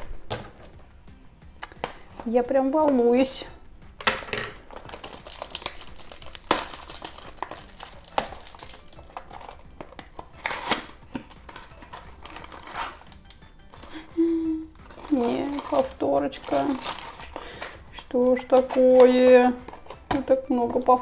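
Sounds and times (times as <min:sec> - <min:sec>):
cellophane crinkling and tearing: 0:04.6 - 0:14.0, 0:14.8 - 0:20.1.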